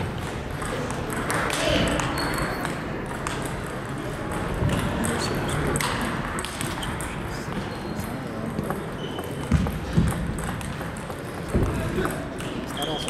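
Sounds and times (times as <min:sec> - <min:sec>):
table tennis balls clicking: 0:00.0 - 0:13.0.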